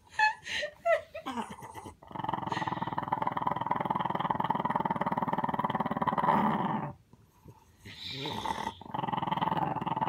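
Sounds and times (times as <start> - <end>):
small dog growling: 1.3 - 7.0, 7.8 - 10.0.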